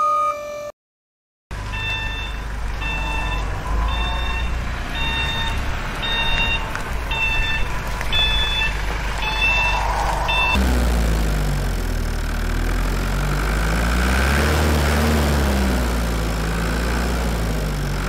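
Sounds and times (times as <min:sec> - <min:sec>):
low engine rumble: 0:01.5 - 0:14.3
reversing alarm beeps: 0:01.7 - 0:10.6.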